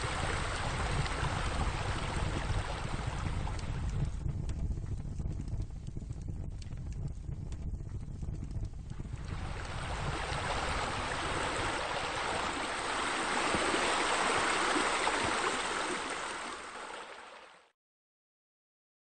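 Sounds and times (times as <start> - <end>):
running water: 0.0 - 4.1, 9.0 - 17.7.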